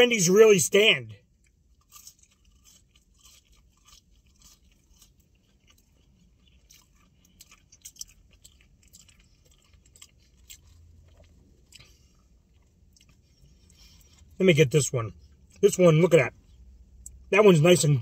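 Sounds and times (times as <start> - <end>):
soft crunches of chewing: 1.2 - 14.4.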